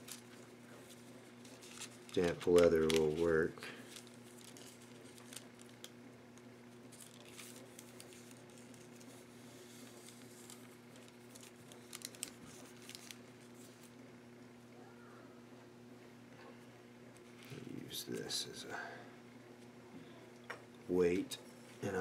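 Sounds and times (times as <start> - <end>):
paper rustling: 0.0 - 5.9, 6.8 - 13.9.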